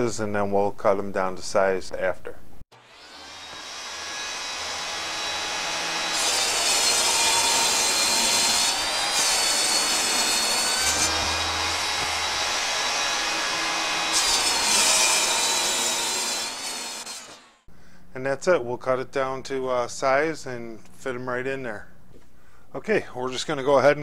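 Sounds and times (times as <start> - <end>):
table saw cutting: 2.7 - 17.7.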